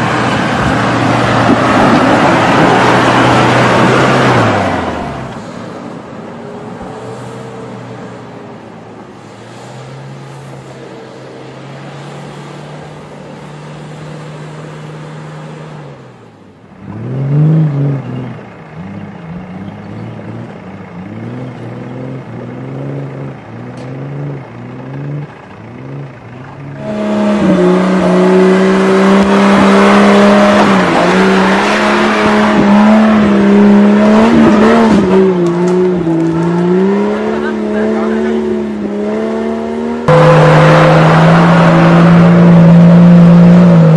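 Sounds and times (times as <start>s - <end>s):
off-road vehicle engine revving: 16.8s - 43.9s.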